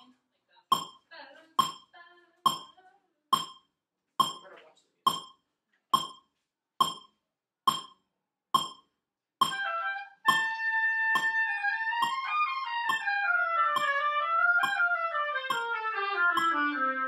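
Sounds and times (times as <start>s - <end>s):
metronome clicking: 0.7s - 1.0s, 1.6s - 2.8s, 3.4s - 4.5s, 5.1s - 5.4s, 6.0s - 6.2s, 6.8s - 8.0s, 8.6s - 16.9s
oboes playing held notes: 9.4s - 17.0s.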